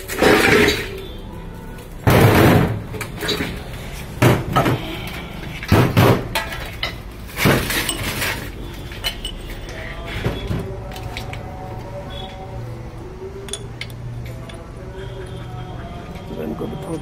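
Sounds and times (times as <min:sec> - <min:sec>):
loud metal clanks: 0:02.0 - 0:03.6.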